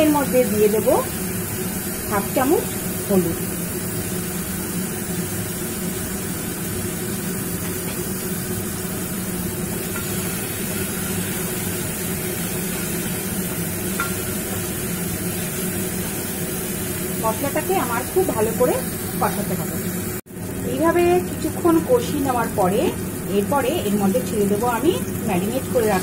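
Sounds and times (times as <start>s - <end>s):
paste sizzling in oil: 0.0s - 20.2s.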